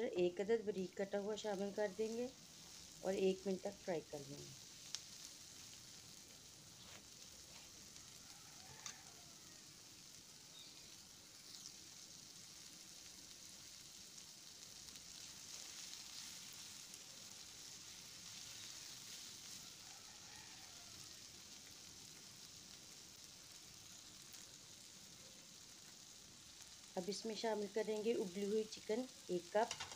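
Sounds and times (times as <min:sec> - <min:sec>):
vegetables sizzling in a pan: 0:00.0 - 0:29.9.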